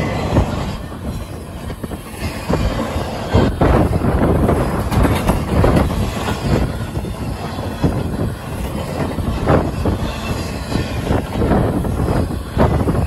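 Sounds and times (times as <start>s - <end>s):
freight train wheels on rails: 0.0s - 13.0s
wind buffeting microphone: 0.0s - 13.0s.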